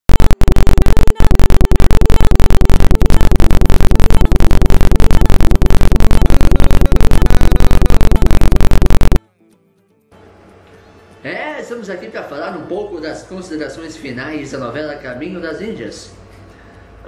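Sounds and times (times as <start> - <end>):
harsh electronic music: 0.1 - 9.2.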